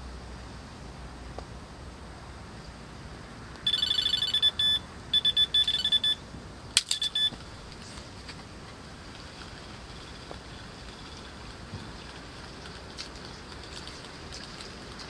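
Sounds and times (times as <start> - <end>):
bite alarm bleeping: 3.7 - 6.2, 6.9 - 7.4.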